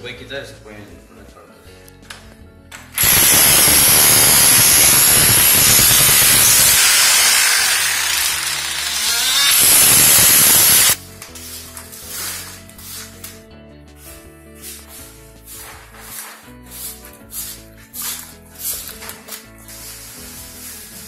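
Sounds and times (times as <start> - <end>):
rotary hammer chiseling wood: 3.0 - 11.0.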